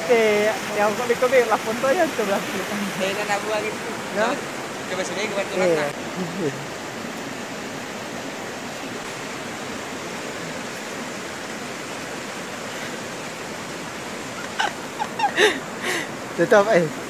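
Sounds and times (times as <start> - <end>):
voices: 0.0 - 6.7
river rushing over rocks: 0.0 - 17.0.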